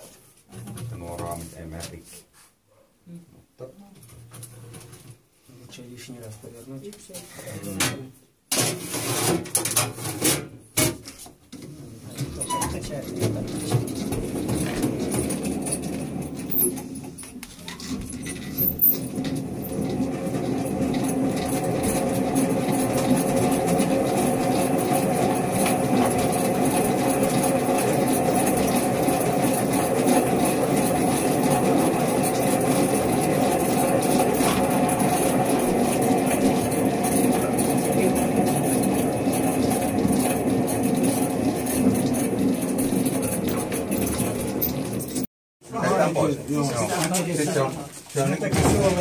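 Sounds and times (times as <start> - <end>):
honey extractor whirring: 12.1 - 45.3.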